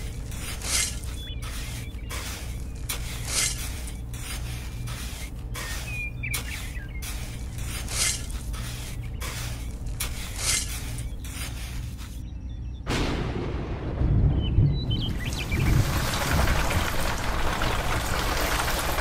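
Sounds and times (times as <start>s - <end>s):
shovel scraping sand: 0.0s - 12.2s.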